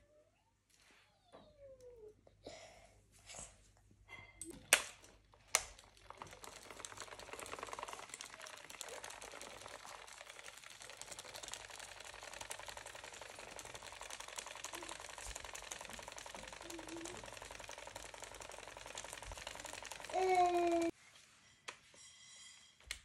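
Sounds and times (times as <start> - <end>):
toy fan ticking whir: 4.5 - 21.0.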